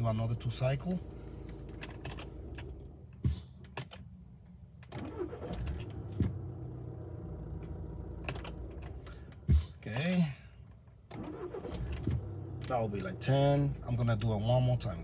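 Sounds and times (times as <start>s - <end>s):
diesel engine idling: 0.0s - 2.6s
engine cranking and restarting: 0.0s - 3.7s, 4.8s - 9.8s, 11.1s - 14.8s.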